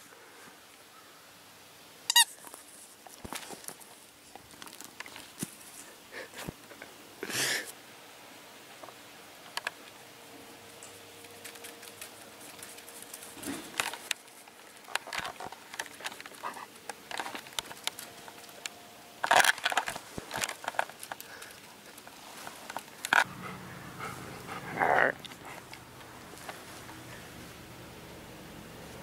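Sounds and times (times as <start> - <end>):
dog panting: 23.2 - 25.9.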